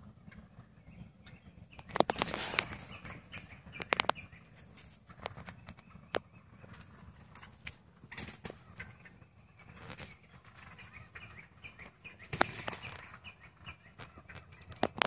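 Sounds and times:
wings beating in sharp slaps: 1.8 - 2.9, 12.2 - 13.1.

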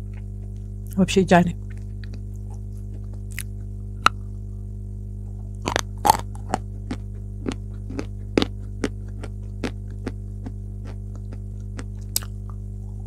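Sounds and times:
mains hum: 0.0 - 13.0
chalk being chewed: 1.6 - 3.5, 5.7 - 10.2.

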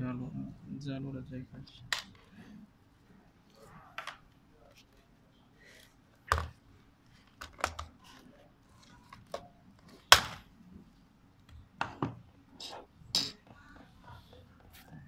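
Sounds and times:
plastic headset clicking and knocking: 6.3 - 6.6, 7.2 - 8.1.

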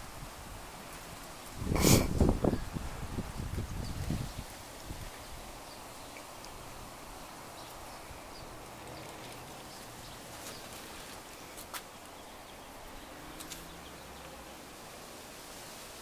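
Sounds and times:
steady hiss: 0.0 - 16.0.

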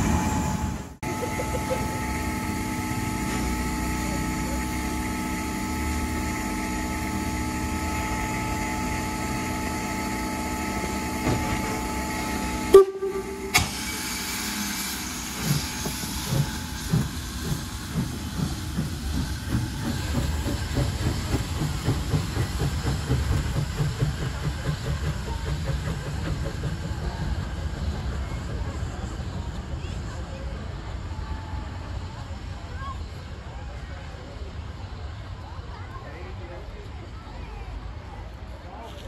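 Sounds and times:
locomotive exhaust chuffing: 0.0 - 32.6
steam locomotive hissing: 0.0 - 35.7
steam whistle toot: 1.2 - 14.0.

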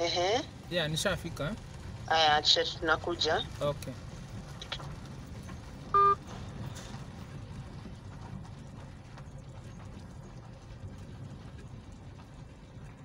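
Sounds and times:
car cabin engine hum: 0.0 - 13.0
loud electronic beep: 6.0 - 6.2.

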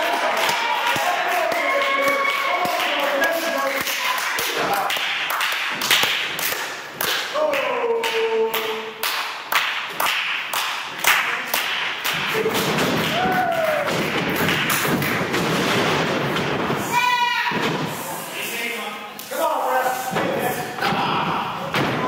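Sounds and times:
person shouting: 16.9 - 17.6.

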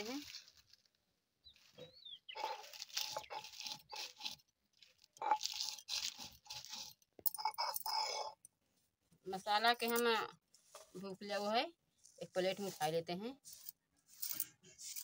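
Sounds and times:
stone grinding dry chillies: 2.3 - 8.5, 12.5 - 15.0.

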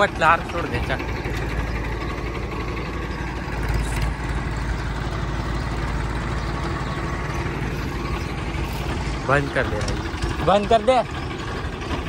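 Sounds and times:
diesel tractor engine idling: 0.0 - 12.0.

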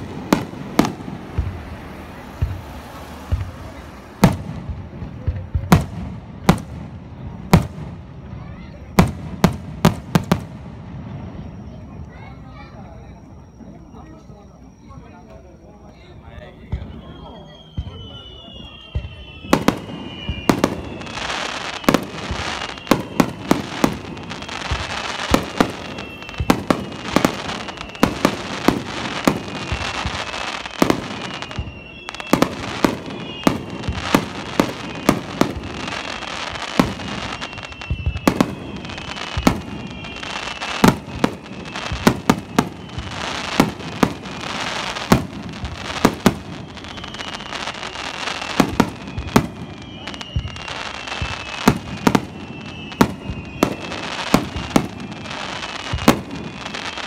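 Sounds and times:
firework whistles: 0.0 - 57.0
fireworks crackling: 0.0 - 57.0
firework shells bursting: 17.7 - 57.0.

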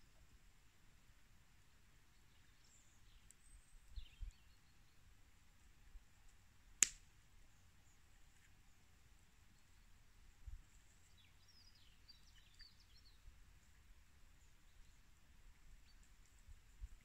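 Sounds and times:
smouldering campfire: 6.2 - 7.1.

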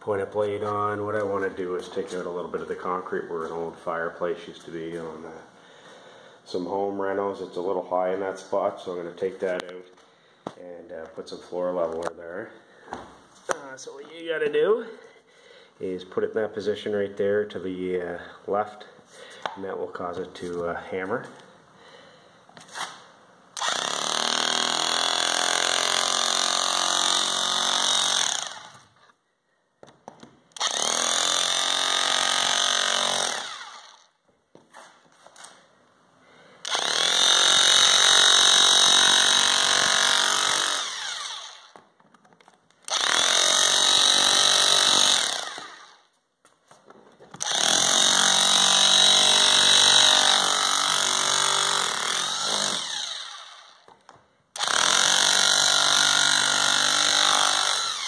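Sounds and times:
rotary hammer chiselling concrete: 23.6 - 28.9, 30.6 - 34.0, 36.7 - 41.8, 42.9 - 46.0, 47.4 - 54.0, 54.6 - 58.0.

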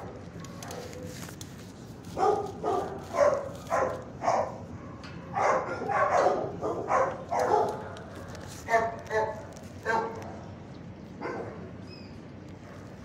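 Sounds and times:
dog barking: 2.2 - 8.0, 8.7 - 10.4, 11.2 - 11.7.

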